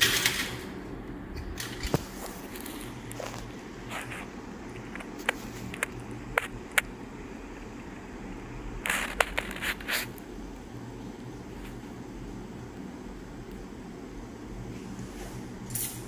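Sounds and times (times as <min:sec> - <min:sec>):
steady low hum: 0:00.0 - 0:16.0
handling scrapes: 0:01.9 - 0:04.4, 0:08.8 - 0:10.2.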